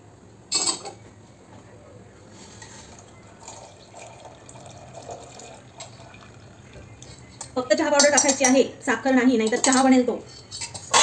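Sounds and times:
liquid trickling through strainer: 2.9 - 7.2.

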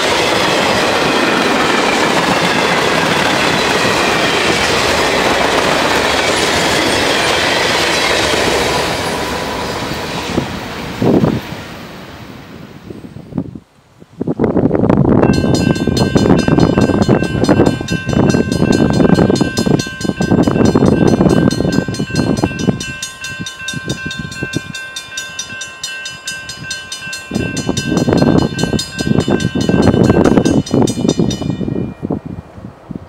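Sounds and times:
crossing warning bell ringing: 0.0 - 8.3, 15.1 - 32.4
wind buffeting microphone: 0.0 - 33.0.

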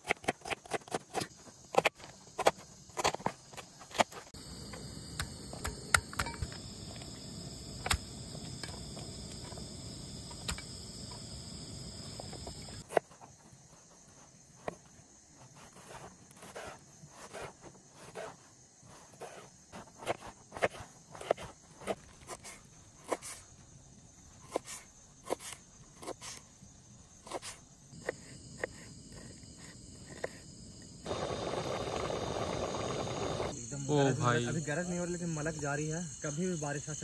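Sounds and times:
insects chirring: 0.0 - 37.0
background hiss: 3.6 - 37.0.

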